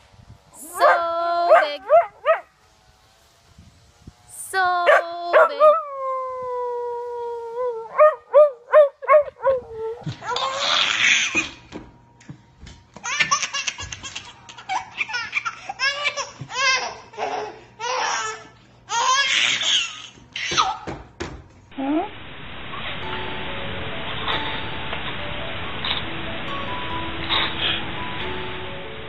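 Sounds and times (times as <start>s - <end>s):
baby laughing: 10.2s - 11.6s, 13.0s - 20.8s.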